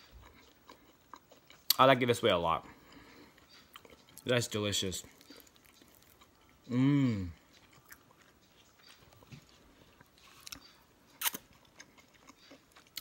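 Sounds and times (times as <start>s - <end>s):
person chewing: 0.0s - 1.8s, 2.7s - 4.3s, 5.0s - 13.0s
person saying mmm: 6.7s - 7.4s.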